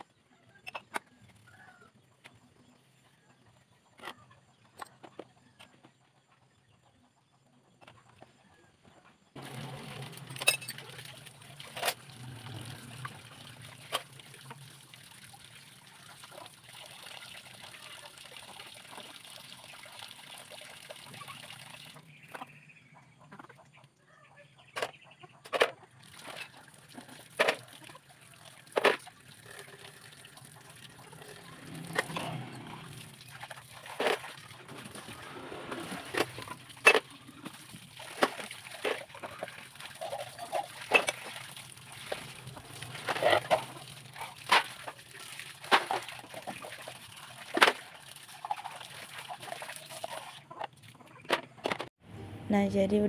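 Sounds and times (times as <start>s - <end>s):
tap water running and splashing: 9.4s - 22.3s, 26.0s - 51.0s.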